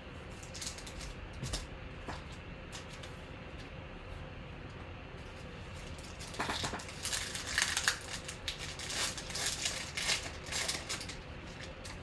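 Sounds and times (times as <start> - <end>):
foil wrapper tearing and crinkling: 0.4 - 1.2, 5.8 - 12.0.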